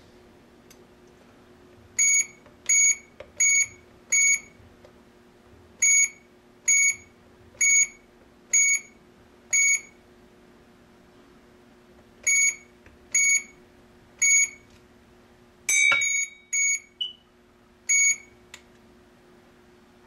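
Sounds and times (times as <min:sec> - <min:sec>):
keypad beeps: 0:02.0 - 0:04.5, 0:12.3 - 0:12.6, 0:17.9 - 0:18.3.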